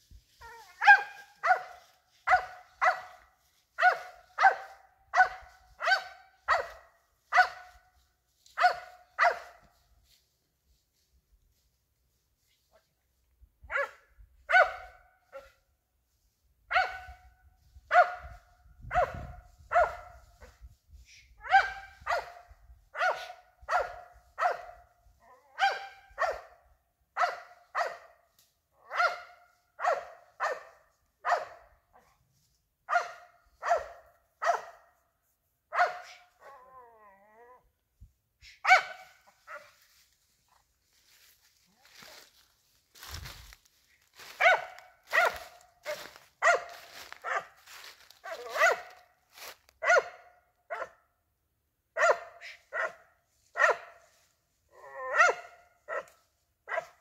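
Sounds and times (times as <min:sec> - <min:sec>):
dog barking: 0:00.4 - 0:07.9, 0:08.5 - 0:09.7, 0:13.6 - 0:15.6, 0:16.7 - 0:17.3, 0:17.9 - 0:20.6, 0:21.4 - 0:32.2, 0:32.9 - 0:35.1, 0:35.7 - 0:36.4, 0:38.4 - 0:39.8, 0:44.2 - 0:51.1, 0:51.9 - 0:54.1, 0:54.9 - 0:57.0.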